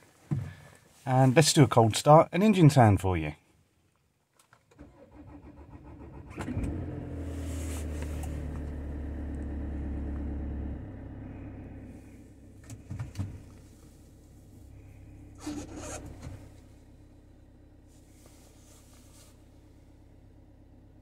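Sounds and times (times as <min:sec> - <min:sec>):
diesel engine starting and idling: 0:04.7 - 0:21.0.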